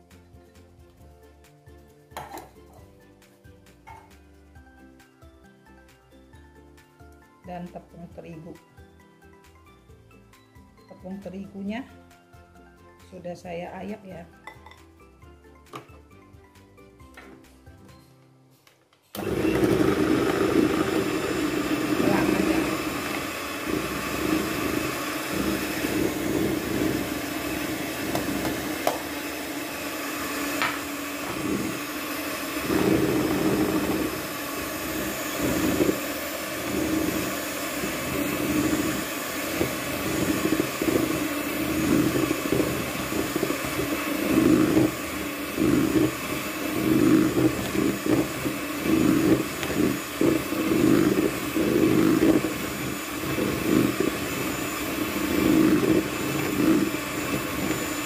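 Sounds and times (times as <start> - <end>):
electric hand mixer whirring: 19.1 - 58.0.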